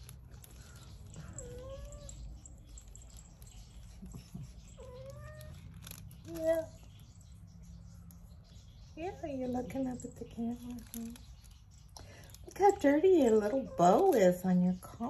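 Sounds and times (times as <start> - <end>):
cat meowing: 1.0 - 2.6, 4.6 - 6.8.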